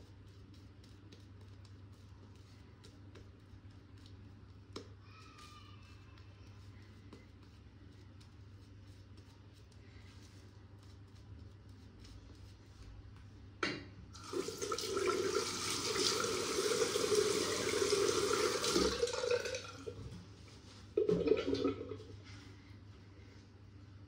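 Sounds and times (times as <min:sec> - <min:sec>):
tap water running into sink: 0:14.2 - 0:20.0, 0:21.0 - 0:22.0.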